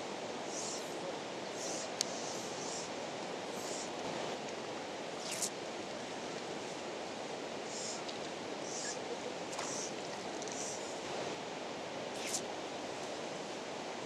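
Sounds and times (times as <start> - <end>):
soft high hisses: 0.0 - 4.4, 5.1 - 5.6, 7.6 - 11.0, 12.1 - 12.5.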